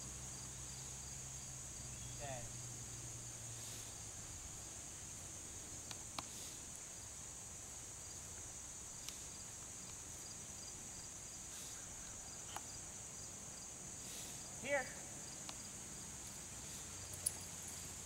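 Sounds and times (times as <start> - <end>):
insects chirring: 0.0 - 18.0
faint clicks: 5.8 - 6.4.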